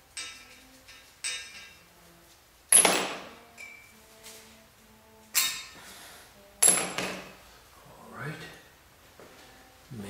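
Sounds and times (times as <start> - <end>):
metal tools clanking on steel: 0.1 - 1.8, 2.7 - 3.9, 5.4 - 5.8.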